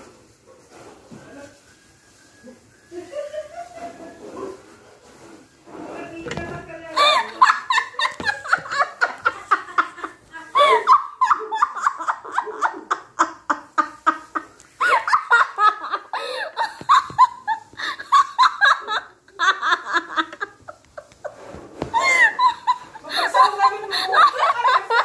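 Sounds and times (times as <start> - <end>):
women laughing: 2.9 - 4.3, 6.9 - 25.0.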